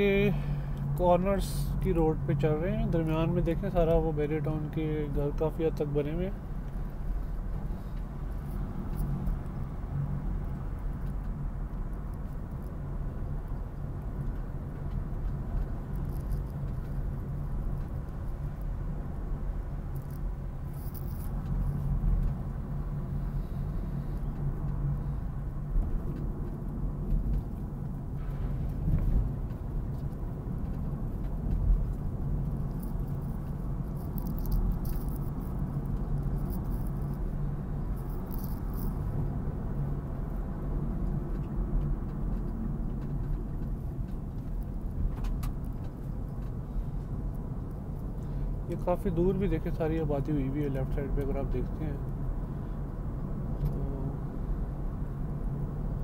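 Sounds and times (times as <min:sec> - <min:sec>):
car engine and tyre hum: 0:00.0 - 0:56.0.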